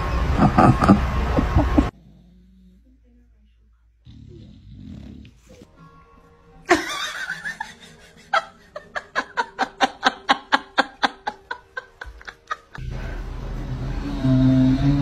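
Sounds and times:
person snickering: 0.4 - 1.9, 6.7 - 12.8.

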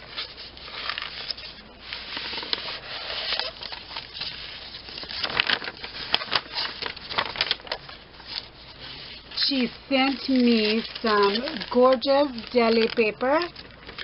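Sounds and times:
paper rustling and crinkling: 0.0 - 14.0.

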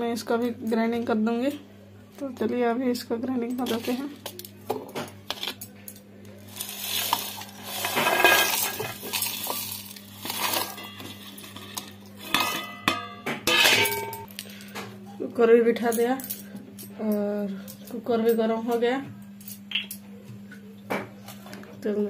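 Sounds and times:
dry spices clinking into metal jar: 6.5 - 13.9.

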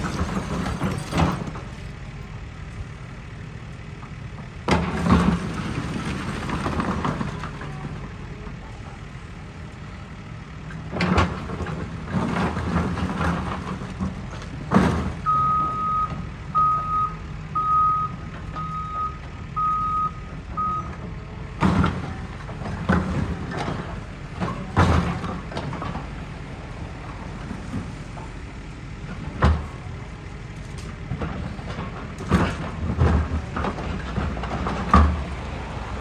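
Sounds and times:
rubble crashing: 0.0 - 1.7, 4.7 - 8.0
excavator diesel engine running: 0.0 - 36.0
reversing alarm beeps: 15.2 - 21.0.

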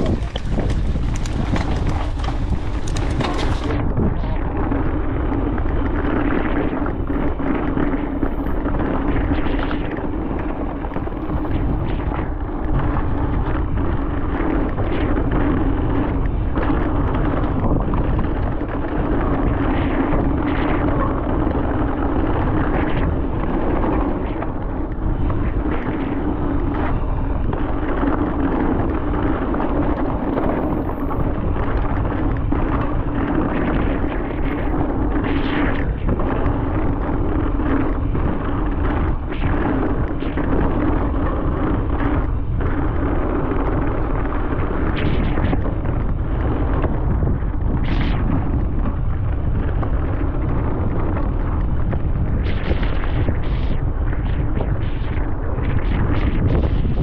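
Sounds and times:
bike knocks and rattles: 0.0 - 3.8
tyres rumbling over dirt: 0.0 - 3.8
wind buffeting microphone: 0.0 - 57.0.

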